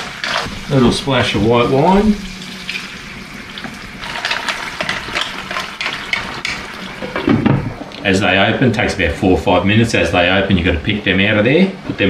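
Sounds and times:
shellfish sizzling in frying pan: 0.0 - 7.2
man talking: 0.7 - 2.3, 8.0 - 12.0.

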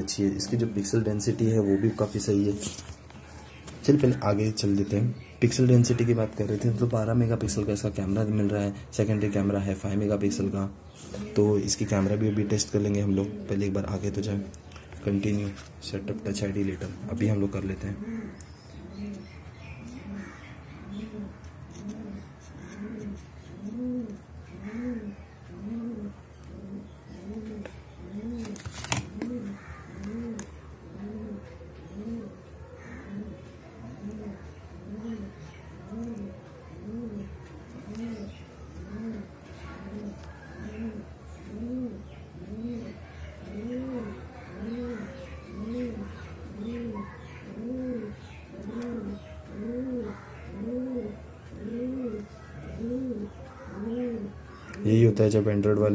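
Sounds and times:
pigeon cooing: 15.9 - 55.1.

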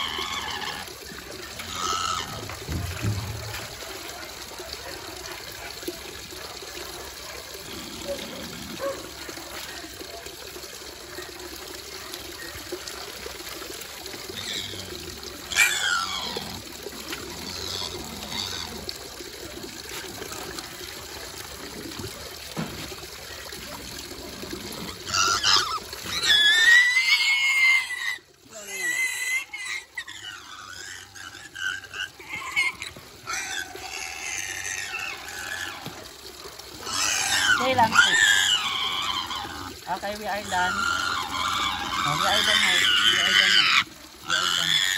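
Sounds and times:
piglet squealing: 0.0 - 3.1, 14.3 - 16.6, 24.8 - 36.0, 36.8 - 44.9
tap water running and splashing: 0.0 - 44.9.

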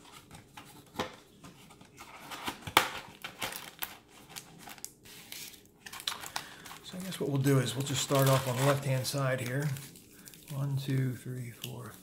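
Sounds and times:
plastic wrappers crackling: 3.1 - 12.0.

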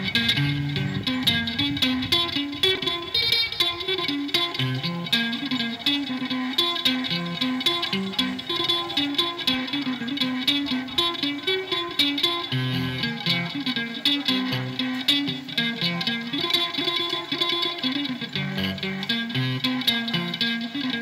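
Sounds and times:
bass line: 0.0 - 16.8, 18.0 - 20.9
plucked strings music: 0.0 - 21.0.

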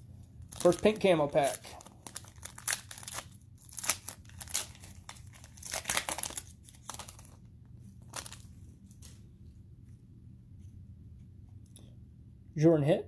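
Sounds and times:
foil wrapper crinkling and tearing: 0.3 - 7.4, 8.0 - 8.5.

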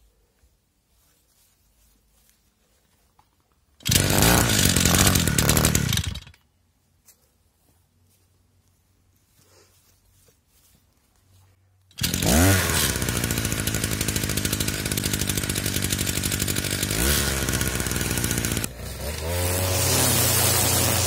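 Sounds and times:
line head cutting grass: 3.8 - 6.3, 11.9 - 21.0
brush cutter engine running: 3.8 - 6.4, 11.9 - 21.0.

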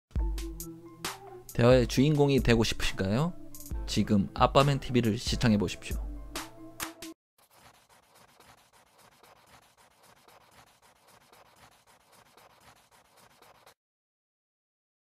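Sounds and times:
pencil scratching on paper: 7.4 - 13.8.

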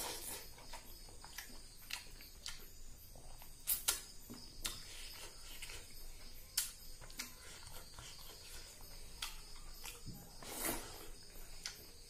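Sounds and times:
chewing and mouth smacks: 0.1 - 4.9.

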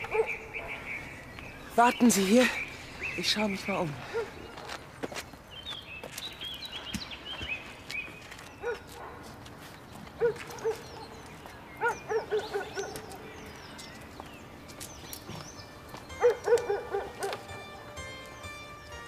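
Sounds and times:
dog barking: 0.0 - 0.8, 4.1 - 4.4, 8.6 - 9.3, 10.2 - 11.2, 11.8 - 13.2, 16.2 - 17.5
birds chirping: 0.0 - 19.0.

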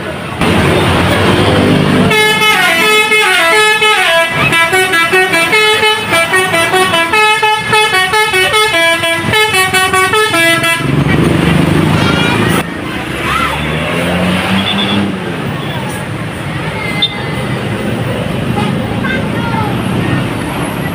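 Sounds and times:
bus horn playing tune: 2.0 - 11.0.

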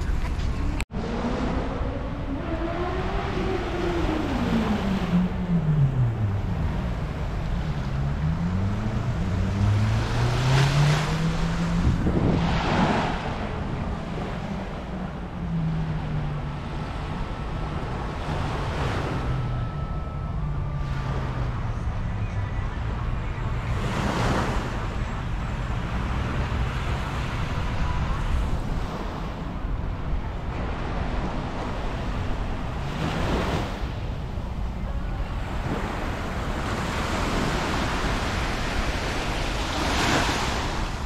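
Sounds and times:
wind on microphone: 0.0 - 19.6
engine hum: 0.0 - 41.0
waves washing on shore: 9.5 - 15.0, 30.5 - 41.0.

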